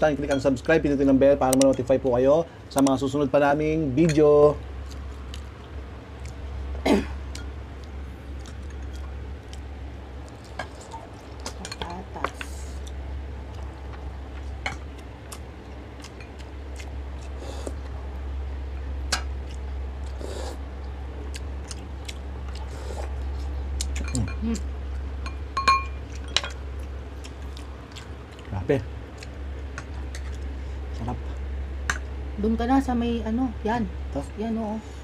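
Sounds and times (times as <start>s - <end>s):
steady low hum: 0.0s - 35.0s
chewing and mouth sounds: 4.8s - 18.0s, 18.8s - 25.2s, 25.9s - 32.1s.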